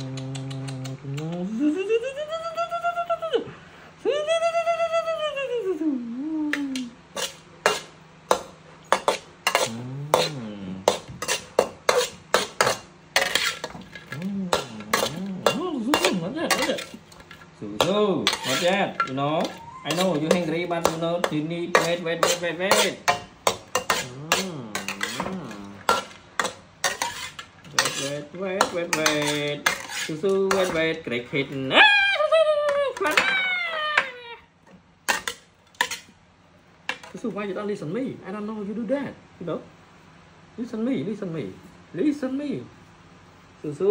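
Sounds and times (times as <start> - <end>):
voice-like whine: 0.0 - 7.0, 9.6 - 10.9, 14.0 - 15.8, 24.0 - 25.9
metal spoon scraping a wok: 7.1 - 17.5, 18.2 - 31.0, 35.1 - 36.1.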